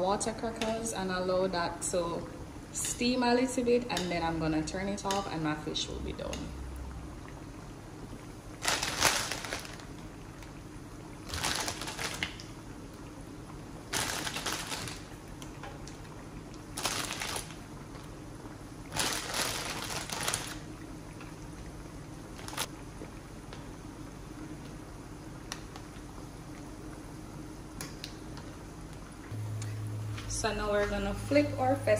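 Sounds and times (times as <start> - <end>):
broth simmering: 0.0 - 31.9
crackers splashing into broth: 8.5 - 12.7, 13.7 - 21.6.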